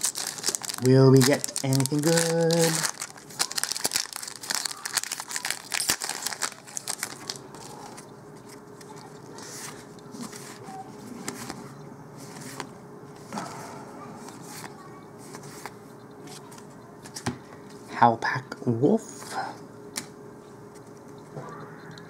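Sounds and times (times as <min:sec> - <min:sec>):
foil wrapper crinkling and tearing: 0:00.0 - 0:08.0
cards rustling being flipped: 0:00.0 - 0:12.7.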